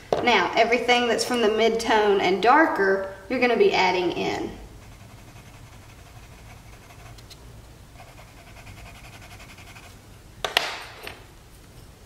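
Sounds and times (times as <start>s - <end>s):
pencil scratching on paper: 4.7s - 7.2s, 8.0s - 10.0s.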